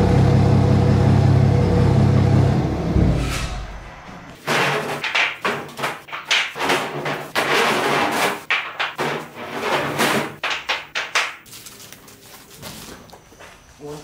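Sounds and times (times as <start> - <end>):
wooden boards dropped on concrete: 4.4 - 11.5.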